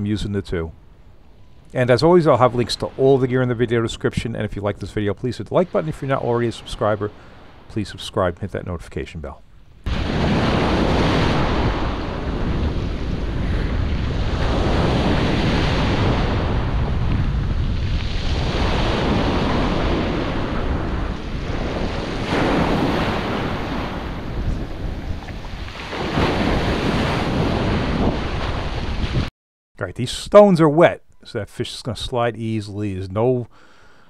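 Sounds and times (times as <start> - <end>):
wind buffeting microphone: 9.8 - 29.3
small waves on stone beach: 9.9 - 16.8, 17.5 - 29.3.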